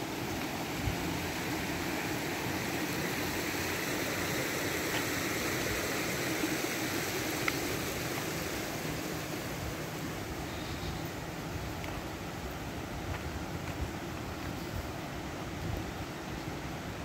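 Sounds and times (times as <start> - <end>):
creek water rushing: 0.0 - 17.0.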